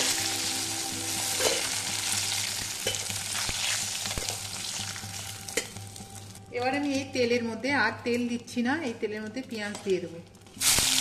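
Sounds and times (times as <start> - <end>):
fish sizzling in hot oil: 0.0 - 6.4, 10.6 - 11.0.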